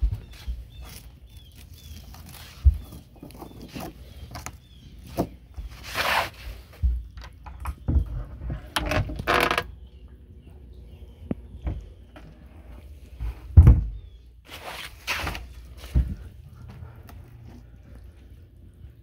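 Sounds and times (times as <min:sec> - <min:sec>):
footsteps on fibreglass deck: 0:00.0 - 0:01.2, 0:11.3 - 0:18.5
rustling scrapes: 0:05.6 - 0:06.8, 0:14.4 - 0:16.3.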